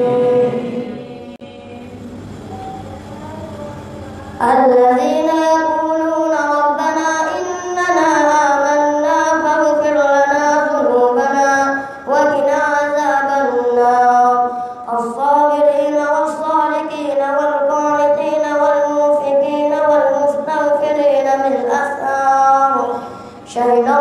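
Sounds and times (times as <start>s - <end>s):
boy chanting: 0.0s - 24.0s.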